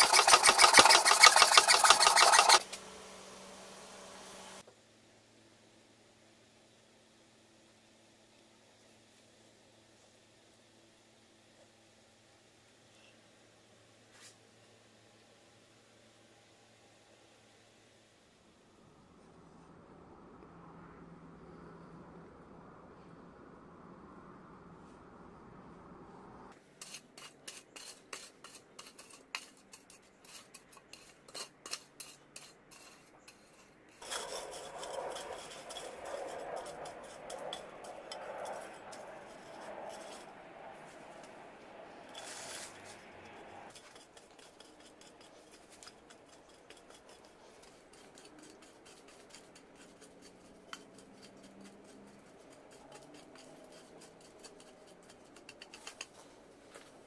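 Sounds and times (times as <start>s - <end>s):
hoe chopping and scraping soil: 0.0s - 2.8s.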